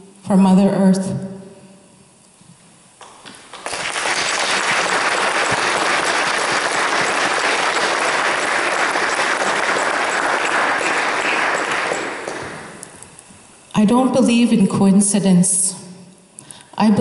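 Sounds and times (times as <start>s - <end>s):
audience applauding: 3.2s - 12.9s.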